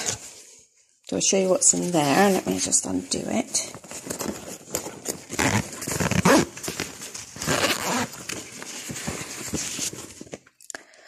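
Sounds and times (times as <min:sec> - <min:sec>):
fabric bag rustling: 0:03.7 - 0:10.4.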